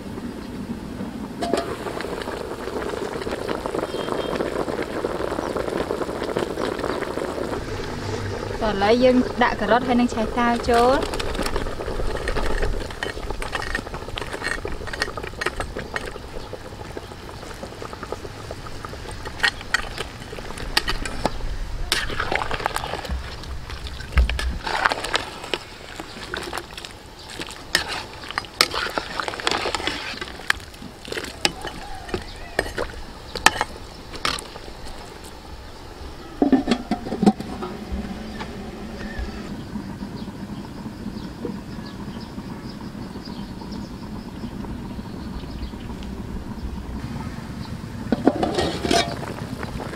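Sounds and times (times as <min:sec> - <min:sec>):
ladle stirring and knocking pot: 0:09.2 - 0:35.1, 0:36.4 - 0:39.2, 0:48.1 - 0:49.4.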